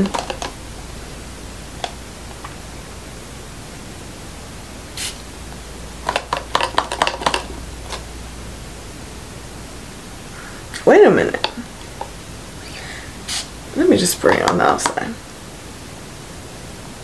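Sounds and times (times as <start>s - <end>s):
steady background hiss: 0.0s - 17.0s
short hiss: 5.0s - 5.2s, 12.6s - 13.6s.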